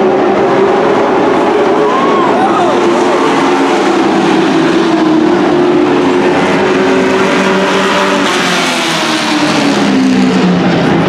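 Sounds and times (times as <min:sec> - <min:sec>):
race truck engines running: 0:00.0 - 0:11.0.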